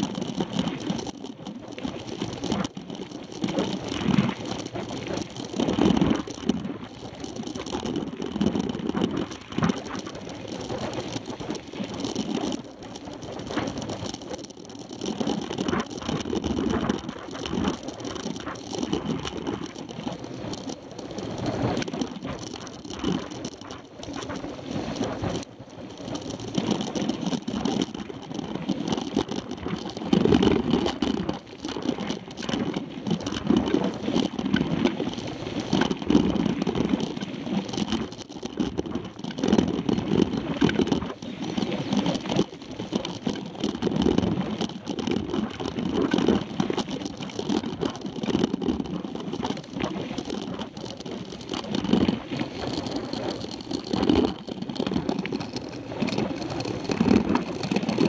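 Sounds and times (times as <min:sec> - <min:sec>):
bike tyres rumbling on dirt: 0:00.0 - 0:58.0.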